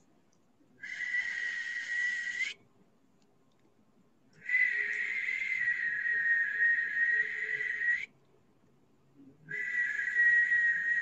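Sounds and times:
breathy high whistling tone: 0.8s - 2.6s, 4.4s - 8.2s, 9.4s - 11.0s.

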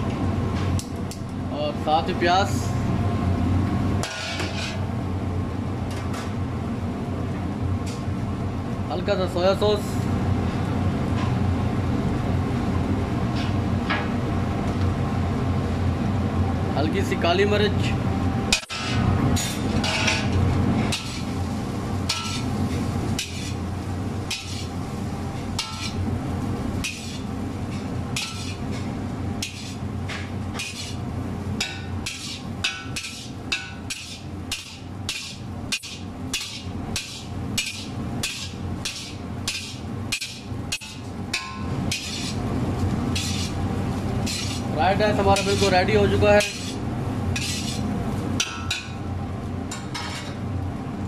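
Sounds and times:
steady low hum: 0.0s - 51.0s
metal utensil clanking against wok: 22.1s - 22.5s, 25.6s - 26.0s, 28.2s - 28.6s, 29.4s - 31.0s, 31.6s - 42.4s.

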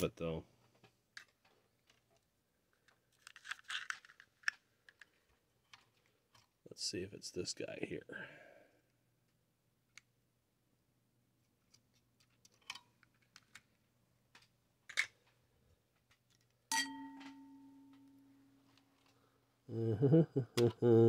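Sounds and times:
struck metal ringing bell-like: 16.7s - 18.4s.

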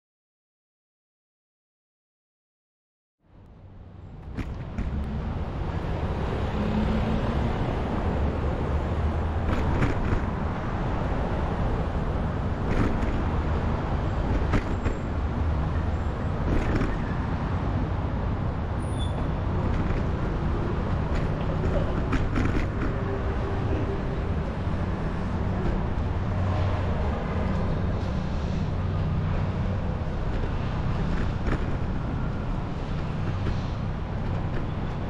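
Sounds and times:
traffic: 3.2s - 35.0s
bicycle riding rumble: 3.5s - 35.0s
bike knocks and rattles: 12.6s - 13.4s.

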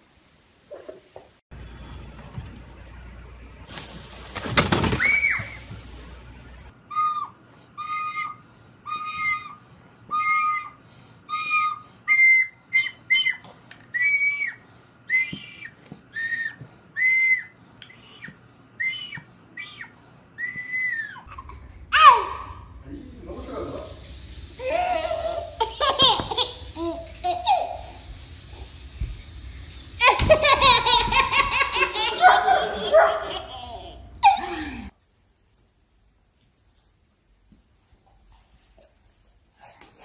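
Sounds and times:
toy recorder toots: 6.9s - 14.5s.

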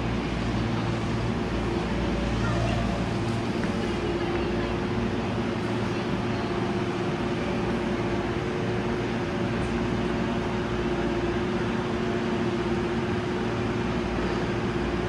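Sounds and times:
electric train humming: 0.0s - 15.0s.

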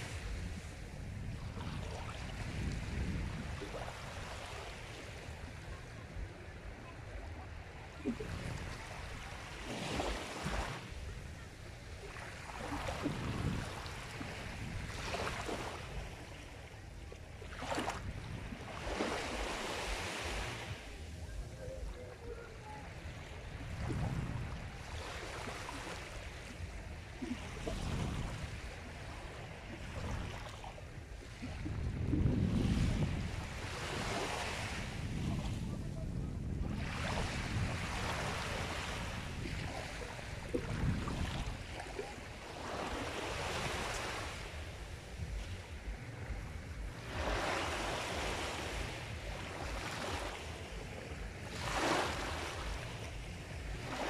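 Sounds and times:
sea waves breaking: 0.0s - 54.0s
steady low rumble: 44.4s - 51.5s.

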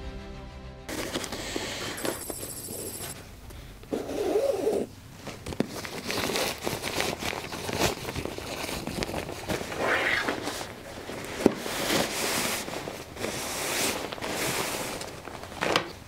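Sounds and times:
crinkly nylon fabric rustling: 5.1s - 16.0s.

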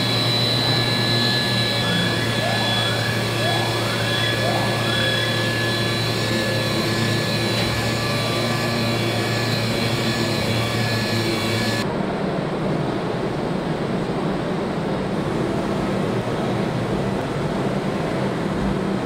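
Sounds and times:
assembly-line machinery humming: 0.0s - 11.8s
steady tones: 0.0s - 11.8s.

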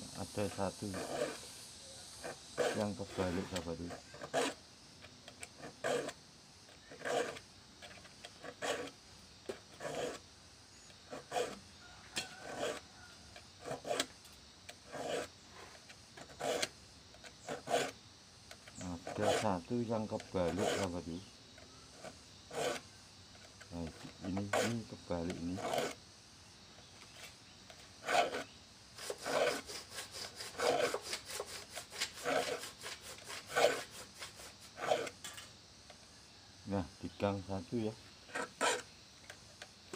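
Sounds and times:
file rasping on saw teeth: 0.2s - 1.5s, 2.1s - 4.6s, 5.6s - 6.2s, 6.8s - 10.2s, 11.1s - 12.9s, 13.6s - 14.2s, 14.8s - 15.3s, 16.2s - 16.8s, 17.4s - 18.0s, 18.7s - 21.2s, 22.0s - 22.8s, 23.6s - 26.0s, 28.0s - 35.2s, 38.3s - 38.9s.

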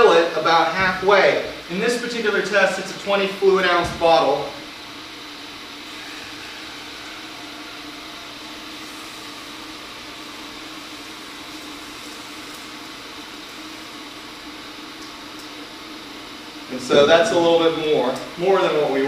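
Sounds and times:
electric kettle heating water: 1.1s - 19.0s.

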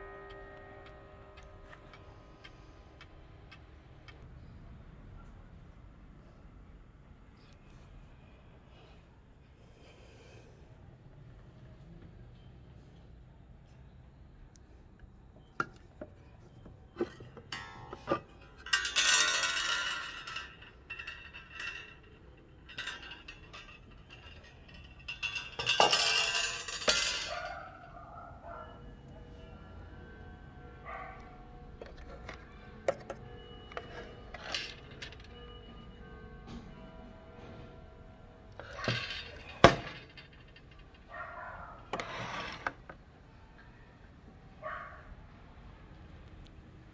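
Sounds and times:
wall clock striking: 0.0s - 3.7s
faint metallic clinks: 15.3s - 43.9s.

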